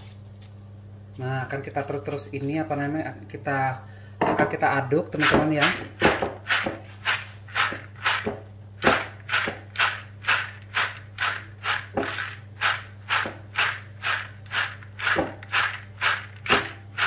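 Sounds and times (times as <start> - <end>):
low steady hum: 0.0 - 17.0
nuts rattling in plastic colander: 8.9 - 17.0.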